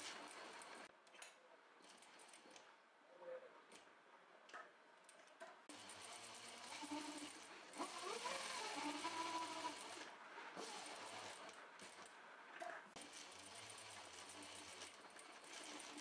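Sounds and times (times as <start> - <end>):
sewing machine stitching: 5.7 - 12.1, 13.0 - 16.0.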